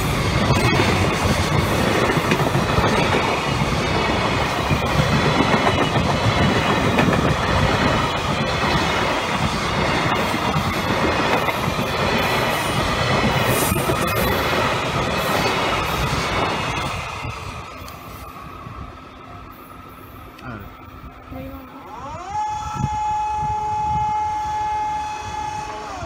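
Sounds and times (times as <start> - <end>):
wheels clacking over rail joints: 0.0 - 18.0
freight train rumbling past: 0.0 - 26.0.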